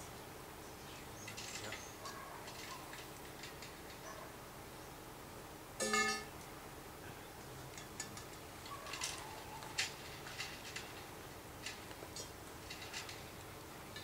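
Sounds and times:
metal tubes clicking and clinking: 5.8 - 6.3, 7.7 - 14.0.

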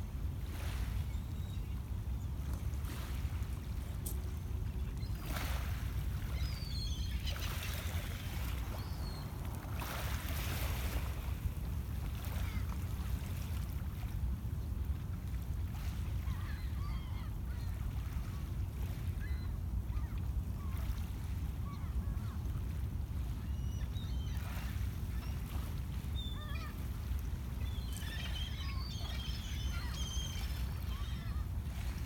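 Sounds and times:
gulls calling: 5.1 - 11.1, 16.2 - 18.2, 23.3 - 32.0.

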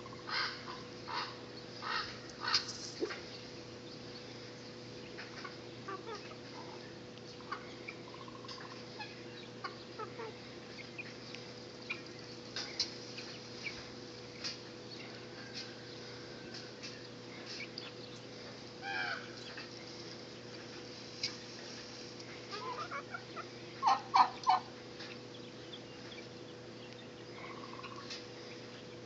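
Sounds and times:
soft clucks and peeps: 0.0 - 29.0
loud short bird calls: 18.8 - 19.6.

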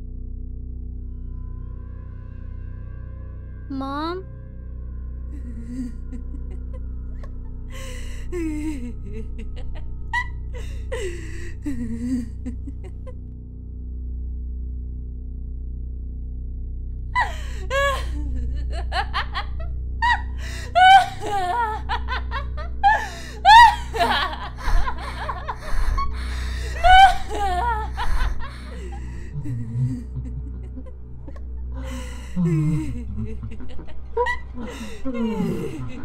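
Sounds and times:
low steady drone: 0.0 - 36.0
woman laughing: 5.4 - 6.8, 7.8 - 13.2, 17.2 - 36.0.

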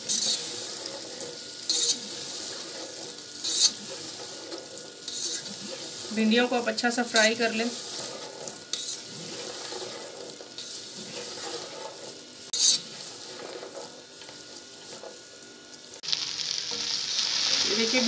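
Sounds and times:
spatula stirring in wok: 0.0 - 15.6
okra sizzling in oil: 0.0 - 18.0.

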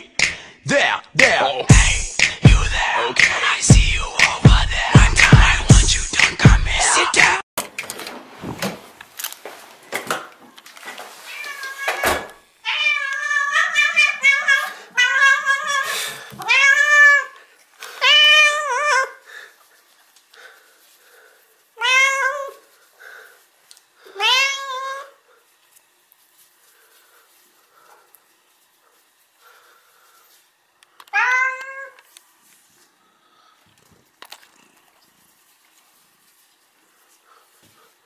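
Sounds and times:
cat meowing: 11.3 - 17.4, 21.8 - 22.6, 24.2 - 25.2, 31.1 - 32.0.

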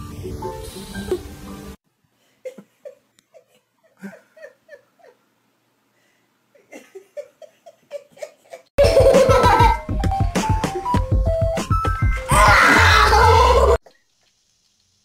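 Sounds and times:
soft giggling: 2.4 - 5.3, 6.5 - 9.8.

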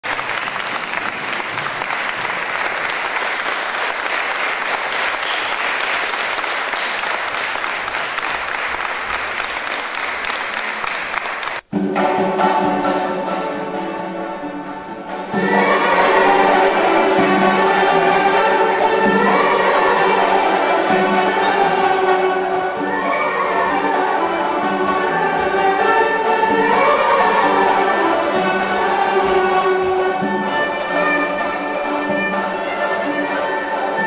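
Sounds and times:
audience applauding: 0.0 - 11.7
folk ensemble playing held notes: 0.0 - 34.0.

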